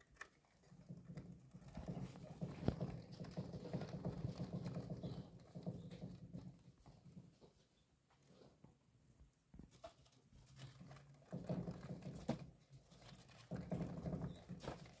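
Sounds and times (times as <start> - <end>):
wooden exercise wheel rumbling: 0.7 - 7.4, 11.0 - 15.0.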